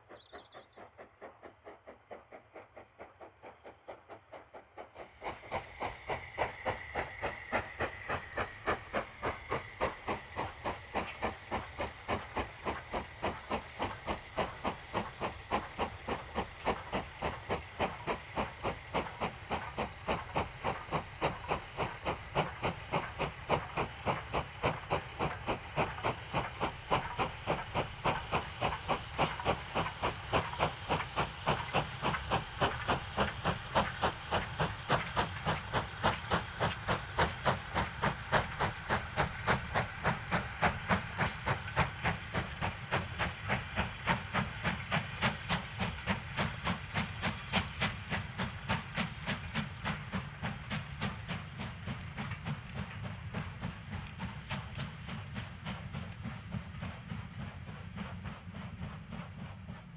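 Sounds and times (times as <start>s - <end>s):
steam locomotive exhaust beats: 0.0s - 59.9s.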